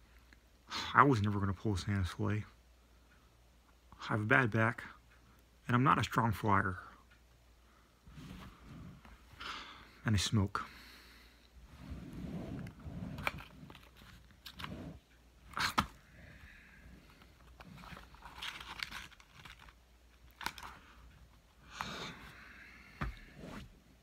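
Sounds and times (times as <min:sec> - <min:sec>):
cardboard pack rustling and crinkling: 0:17.4 - 0:20.7.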